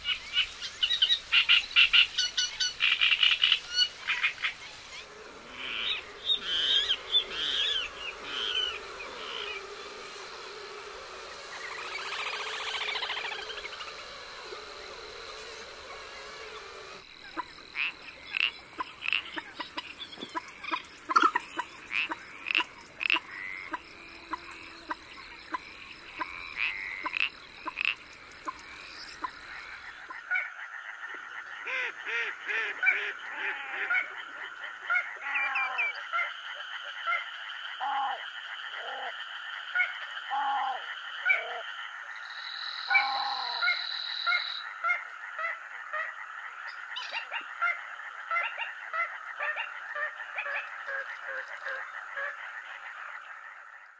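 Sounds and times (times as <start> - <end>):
frogs croaking: 0.0 - 53.9
high steady buzz: 2.8 - 30.3
trilling drone: 4.5 - 30.3.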